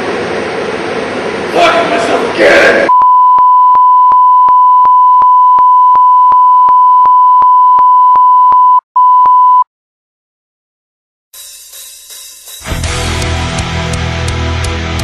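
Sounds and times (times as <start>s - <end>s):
steady electronic beep: 2.9s - 9.6s.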